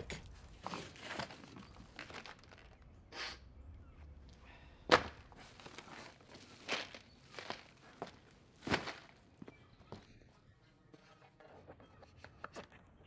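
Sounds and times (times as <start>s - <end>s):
cardboard rustling and scraping: 0.5s - 2.6s.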